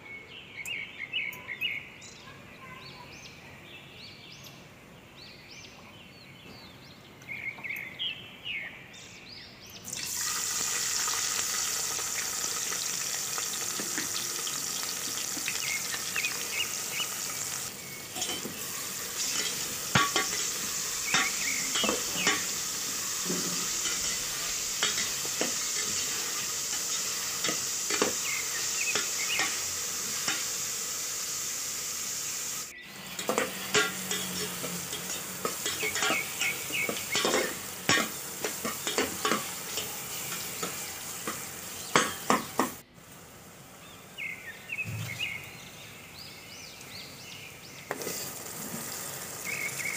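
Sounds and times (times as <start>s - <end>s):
onions sizzling in hot oil: 9.9s - 42.8s, 47.9s - 49.9s
metal spatula scraping a pot: 18.1s - 30.5s, 33.1s - 42.5s.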